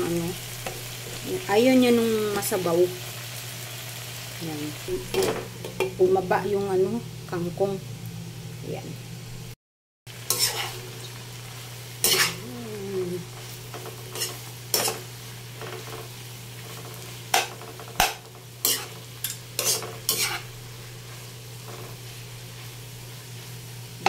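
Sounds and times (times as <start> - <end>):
greens sizzling in a wok: 0.0 - 24.0
spatula scraping a pan: 10.2 - 11.0, 12.0 - 12.4, 13.3 - 23.6.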